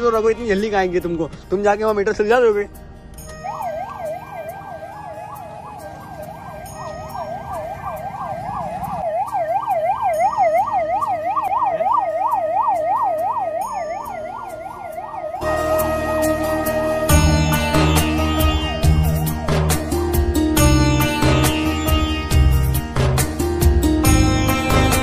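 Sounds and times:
ambulance siren yelping: 3.3 - 22.0.

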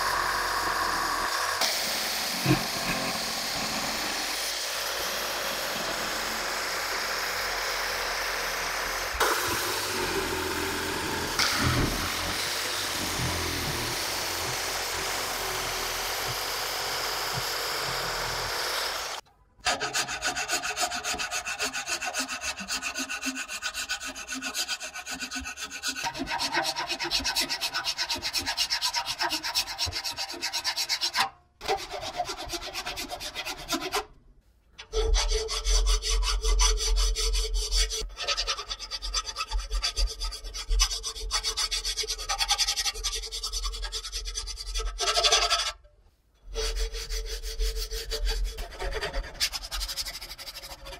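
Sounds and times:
jigsaw cutting wood: 0.0 - 19.8
file rasping: 0.0 - 34.2, 34.8 - 45.8, 46.4 - 50.9.

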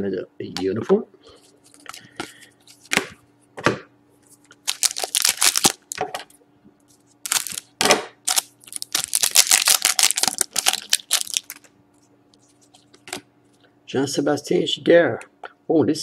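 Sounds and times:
wrapper being torn and crinkled: 4.6 - 6.0, 7.2 - 11.7.

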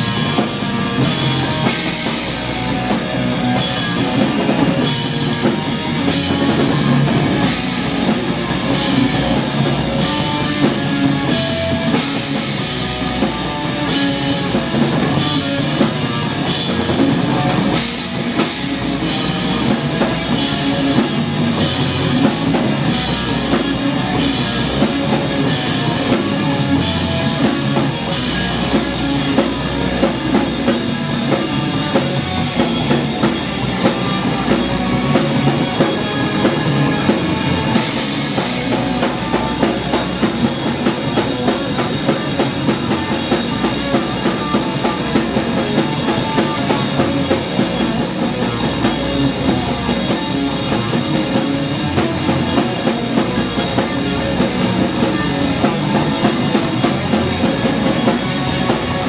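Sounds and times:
bass guitar: 0.0 - 59.0
distorted electric guitar: 0.0 - 59.0
fast drum kit and cymbals: 0.0 - 59.0.

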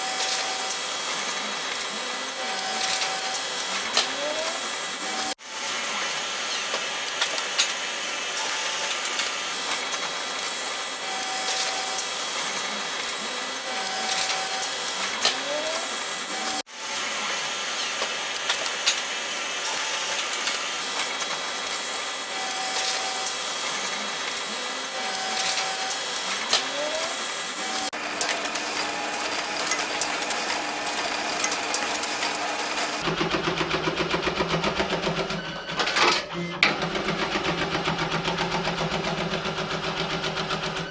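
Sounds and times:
sheet-handling machinery whirring: 0.0 - 40.9
sewing machine stitching: 28.0 - 40.9.

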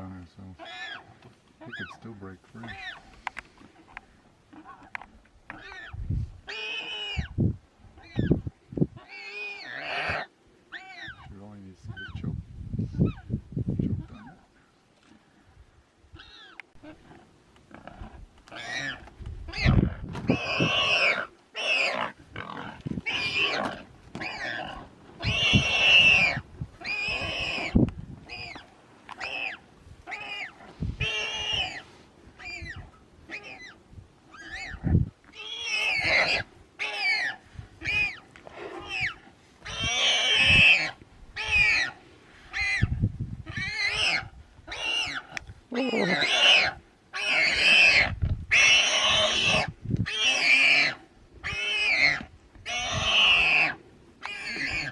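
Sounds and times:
warthog squealing: 0.6 - 2.0, 9.0 - 11.3, 17.8 - 28.6, 29.2 - 31.8, 32.4 - 54.9.

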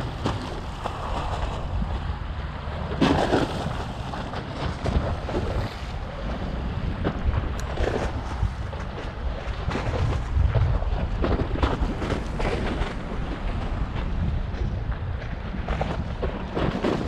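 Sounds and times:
waves slapping against seawall: 0.0 - 17.0
wind buffeting microphone: 0.0 - 17.0.

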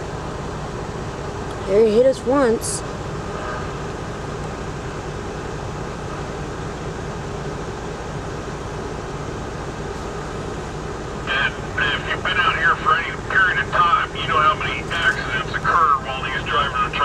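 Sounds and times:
diesel truck engines idling: 0.0 - 17.0.

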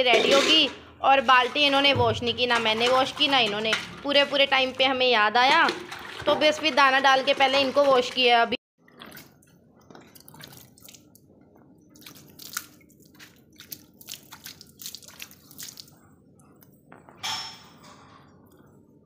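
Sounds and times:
milk squirting and splashing: 8.9 - 11.2, 12.0 - 16.0.

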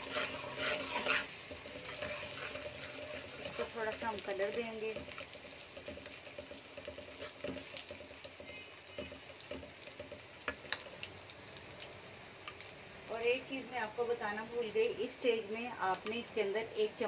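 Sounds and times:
metal ladle scraping a pan: 0.0 - 7.9
paste sizzling in hot oil: 0.0 - 17.0.

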